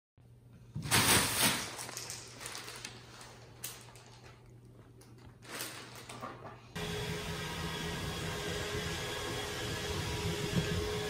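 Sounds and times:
plastic bag crinkling: 0:00.9 - 0:06.3.

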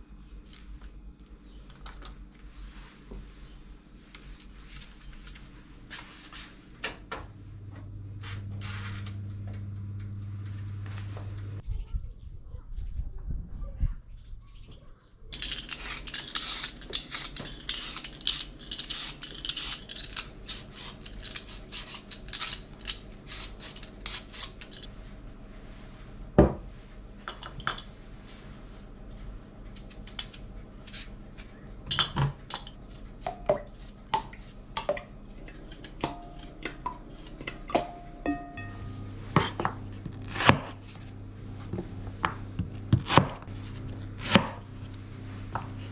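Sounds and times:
peeler scraping potatoes: 0:15.3 - 0:24.9, 0:29.8 - 0:34.6, 0:35.2 - 0:37.7.

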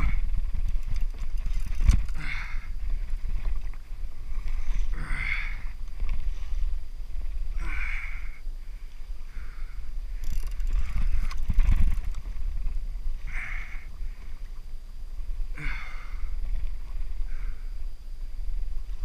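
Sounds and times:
rapid mechanical clicking: 0:00.0 - 0:02.2, 0:10.2 - 0:12.4
water slapping kayak hull: 0:00.0 - 0:19.0
wind buffeting microphone: 0:00.0 - 0:19.0.

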